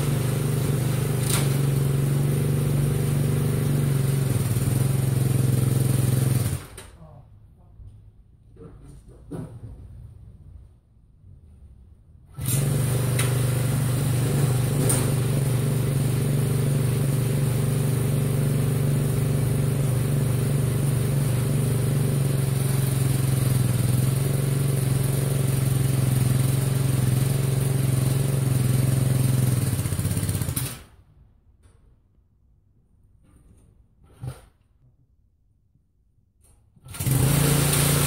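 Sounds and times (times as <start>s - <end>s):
small engine running fast: 0.0s - 6.6s, 12.4s - 30.8s, 36.9s - 38.0s.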